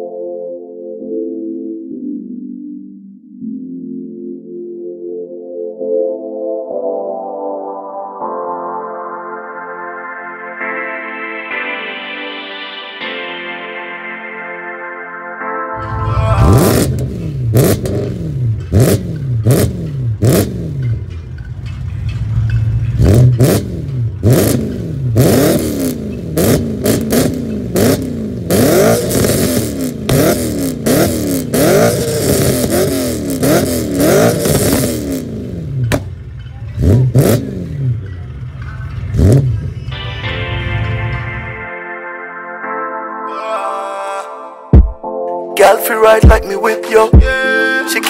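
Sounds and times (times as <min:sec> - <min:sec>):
car engine revving: 0:15.8 - 0:39.9
exhaust pops and crackles: 0:16.7 - 0:39.7.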